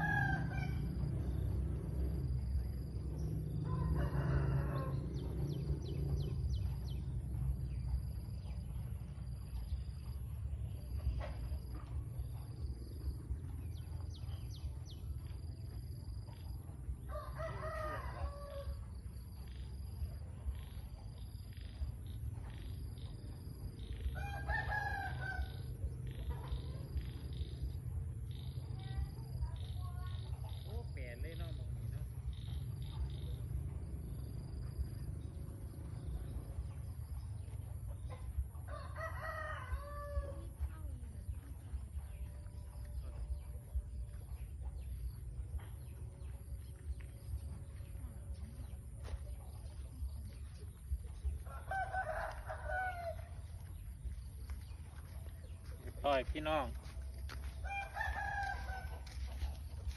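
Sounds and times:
rooster crowing: 0.0s - 1.4s, 3.6s - 5.5s, 17.1s - 19.4s, 23.9s - 27.1s, 38.6s - 40.6s, 51.5s - 53.6s, 57.3s - 59.3s
steady low rumble: 0.0s - 59.9s.

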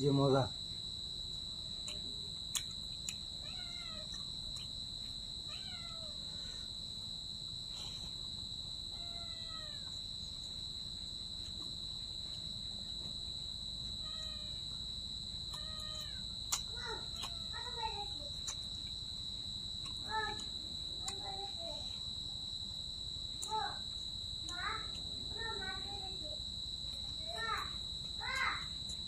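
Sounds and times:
cat meowing: 3.4s - 4.2s, 5.5s - 6.2s, 8.9s - 10.0s, 15.5s - 16.3s.

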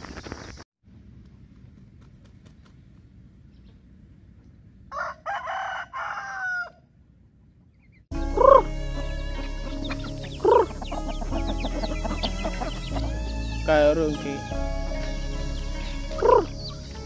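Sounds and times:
rooster crowing: 4.9s - 6.9s
chicken clucking: 7.4s - 14.4s.

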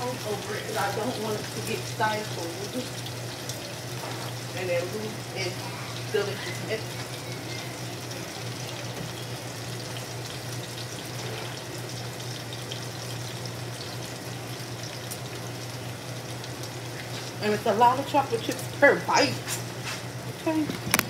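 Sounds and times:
chicken sizzling in a frying pan: 0.0s - 21.0s.

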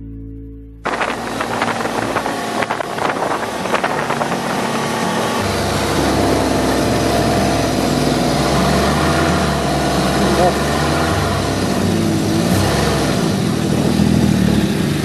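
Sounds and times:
wind rush: 0.8s - 8.8s
snowmobile engine running: 0.8s - 15.0s.

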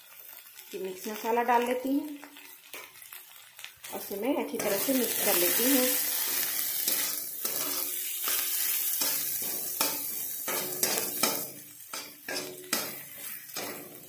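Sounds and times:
onions sizzling in oil: 0.0s - 14.0s
spatula scraping a pan: 4.6s - 14.0s.

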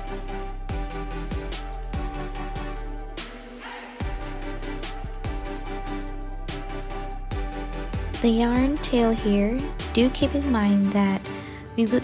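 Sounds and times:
background music with drum beat: 0.0s - 10.5s.

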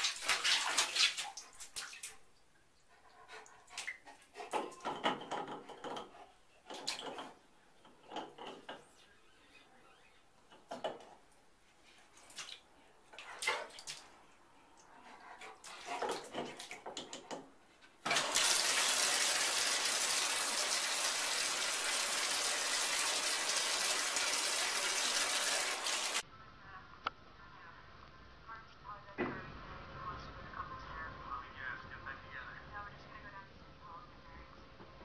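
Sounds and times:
water running into bathtub: 0.0s - 2.2s, 18.0s - 26.2s
clicks and knocks on faucet: 4.5s - 8.9s.

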